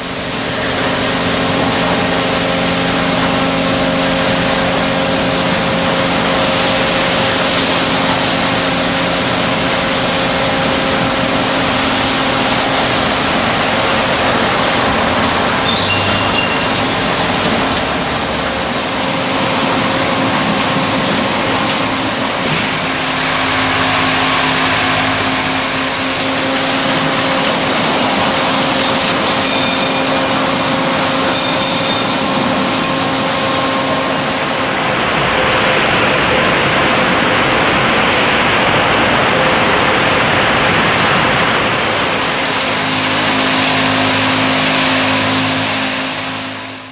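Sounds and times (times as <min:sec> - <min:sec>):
car wash spray rushing: 0:00.0 - 0:46.9
low mechanical hum: 0:00.0 - 0:46.9
high chirps: 0:15.6 - 0:17.1.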